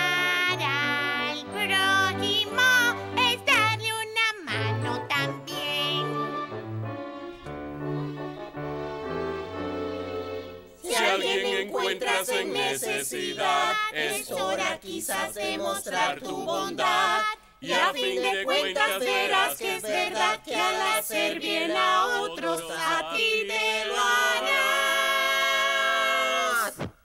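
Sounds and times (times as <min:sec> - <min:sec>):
voices singing cartoon song: 0:00.0 - 0:06.2, 0:10.8 - 0:26.8.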